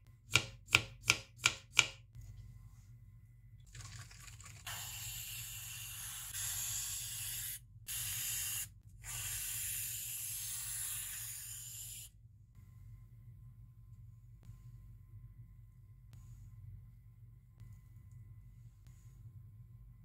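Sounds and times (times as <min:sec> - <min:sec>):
aerosol can hissing: 0:04.7 - 0:12.1.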